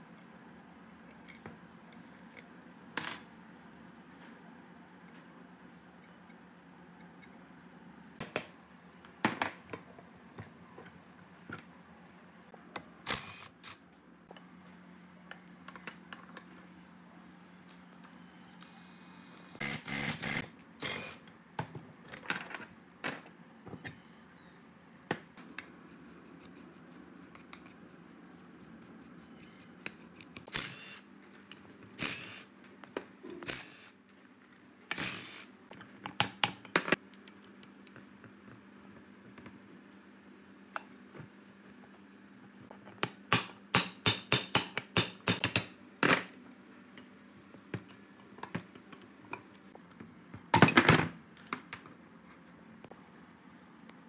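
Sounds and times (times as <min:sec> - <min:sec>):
metallic clicks of hand tools: 0:43.0 - 0:45.7.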